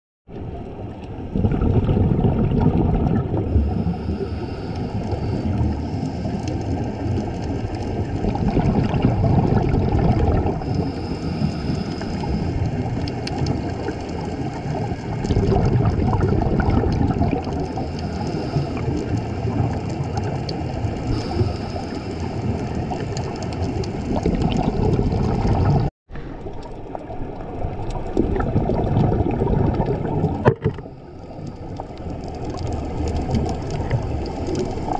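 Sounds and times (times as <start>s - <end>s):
low underwater rumble: 0.3s - 34.9s
bubbling exhalations: 1.3s - 34.9s
regulator inhalation hiss: 3.6s - 6.4s, 10.7s - 12.6s, 17.9s - 18.8s, 21.2s - 22.5s.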